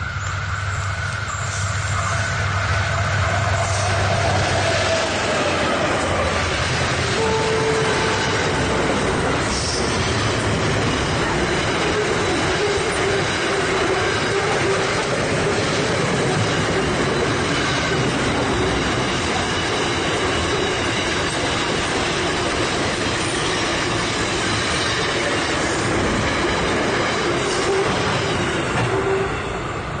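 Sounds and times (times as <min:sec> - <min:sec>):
freight train wagons rolling past: 0:00.0 - 0:30.0.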